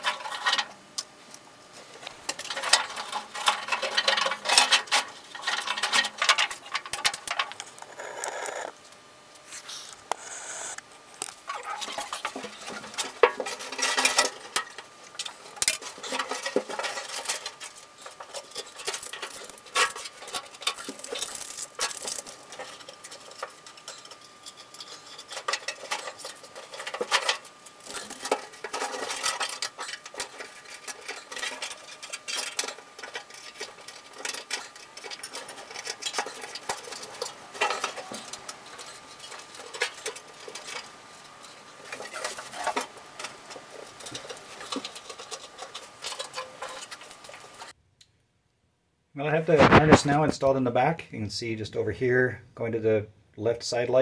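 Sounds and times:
hands handling wiring and tape: 11.1s - 48.1s.

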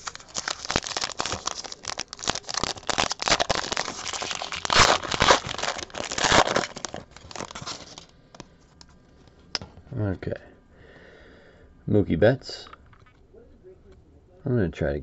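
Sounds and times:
foil wrapper crinkling: 0.0s - 8.1s.

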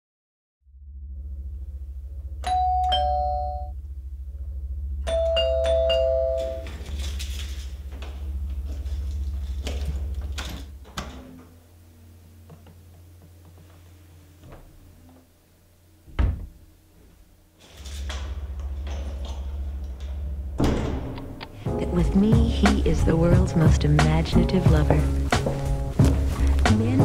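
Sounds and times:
steady low hum: 0.7s - 27.0s
doorbell ding-dong chime: 2.4s - 3.7s, 5.1s - 6.7s.

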